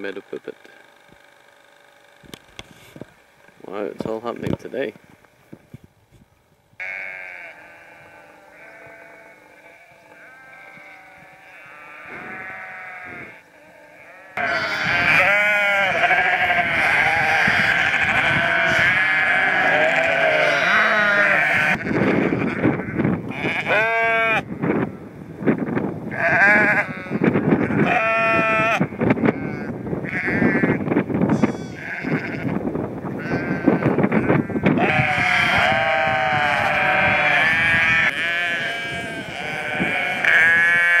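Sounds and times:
sheep bleating: 6.8 - 24.5, 26.1 - 41.0.

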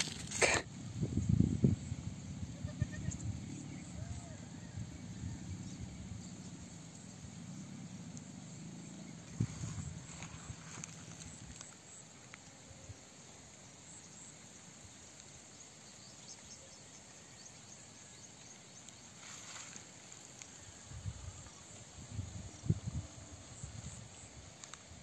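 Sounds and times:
insects droning: 0.0 - 25.0
light ticks: 24.6 - 24.9.

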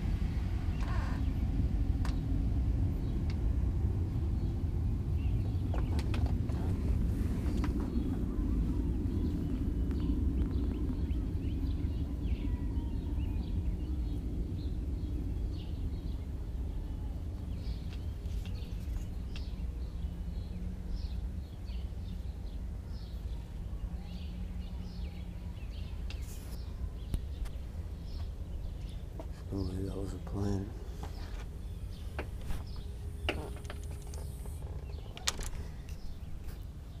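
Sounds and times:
low rumble from the sky: 0.0 - 37.0
small birds chirping: 0.1 - 37.0
screen door clicks: 32.2 - 36.0.

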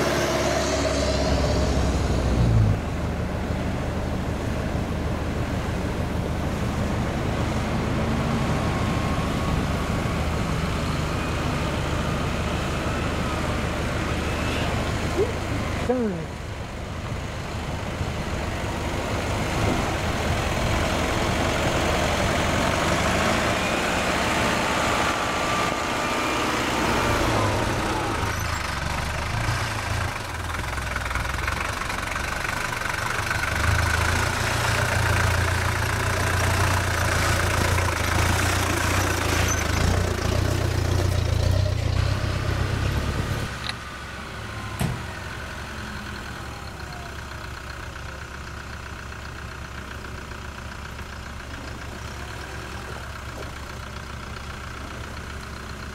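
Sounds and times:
vehicle engine running: 0.0 - 55.9.

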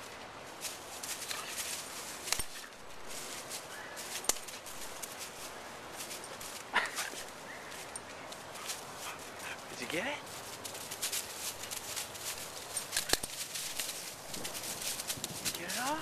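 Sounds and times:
dry leaves crunching underfoot: 0.0 - 16.0
twigs rattling: 0.0 - 16.0
branch cracking: 1.0 - 5.4, 10.4 - 16.0.

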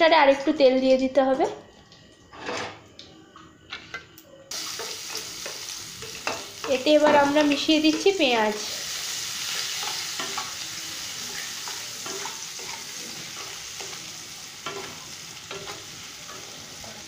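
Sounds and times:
onions sizzling in oil: 4.5 - 17.0.

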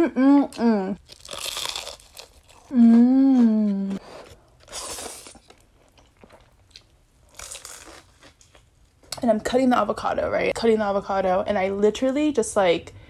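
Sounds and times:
woman humming mmm: 0.0 - 1.0, 2.7 - 4.0
crunching and chewing: 1.0 - 8.7.

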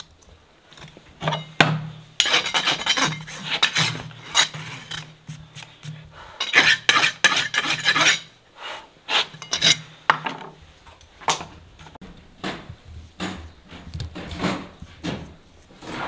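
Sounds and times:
hoof rasp scraping: 2.2 - 8.4, 9.1 - 10.0, 13.4 - 16.0.

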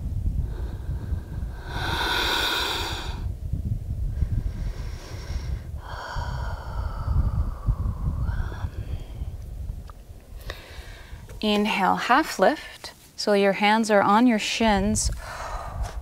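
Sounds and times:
wind rumbling on microphone: 0.0 - 13.2, 14.1 - 16.0
woman breathing deeply: 0.4 - 3.4, 4.0 - 9.5, 10.4 - 11.3, 15.1 - 16.0.

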